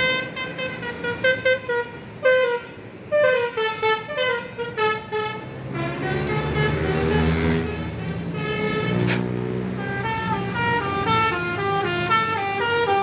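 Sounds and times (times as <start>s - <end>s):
musical bus air horn: 0.0s - 13.0s.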